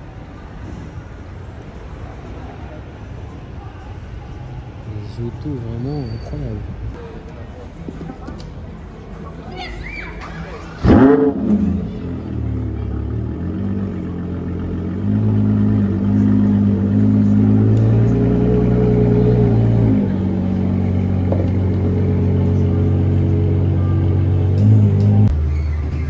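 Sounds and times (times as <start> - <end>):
sports car engine revving: 10.8 - 25.3.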